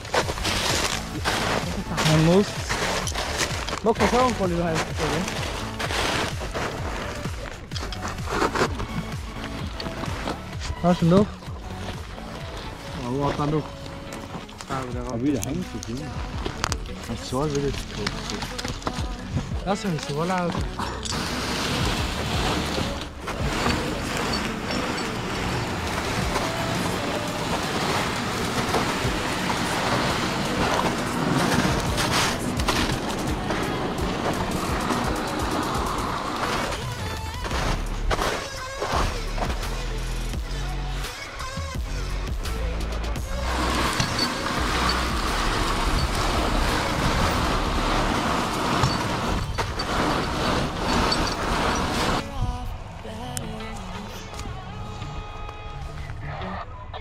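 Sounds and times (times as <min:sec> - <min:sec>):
heavy diesel machinery running: 0:20.8 - 0:38.4, 0:42.4 - 0:52.5.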